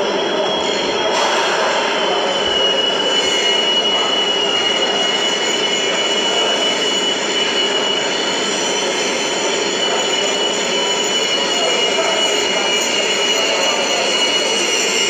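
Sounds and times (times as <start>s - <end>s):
train running noise: 0.0s - 15.0s
train wheels squealing on rails: 0.0s - 15.0s.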